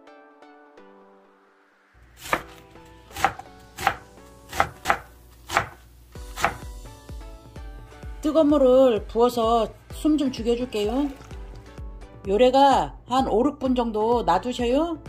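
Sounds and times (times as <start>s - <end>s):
soft background music: 0.0s - 15.0s
knife chopping on wooden board: 2.2s - 6.7s.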